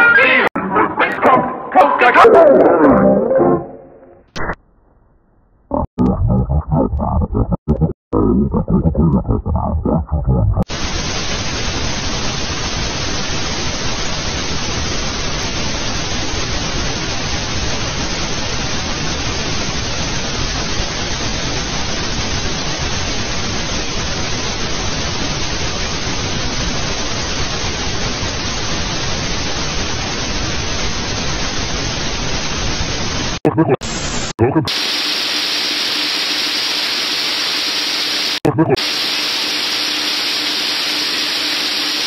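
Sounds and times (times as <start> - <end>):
static white noise hiss: 10.7 - 42.0.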